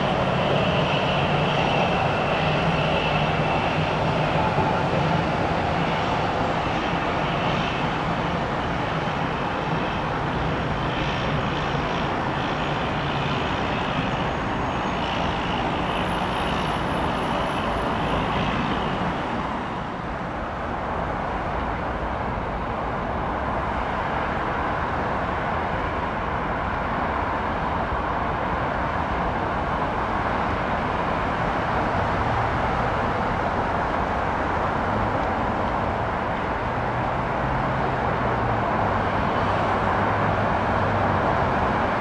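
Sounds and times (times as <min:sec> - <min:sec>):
turboprop engine running: 0:00.0 - 0:20.9
jet airliner engine noise: 0:00.0 - 0:42.0.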